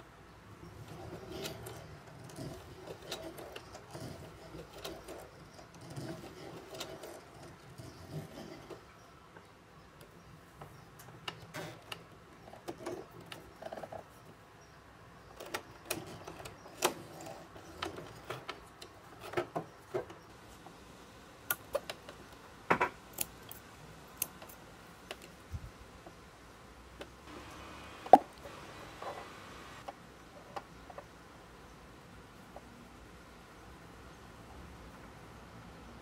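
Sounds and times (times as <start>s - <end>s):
hand-cranked sewing machine clicking: 0.8s - 8.8s.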